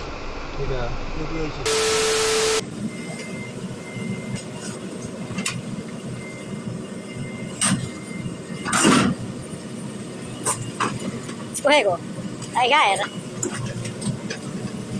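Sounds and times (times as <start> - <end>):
rasping burst: 0.0 - 2.6
excavator engine rumble: 0.0 - 14.9.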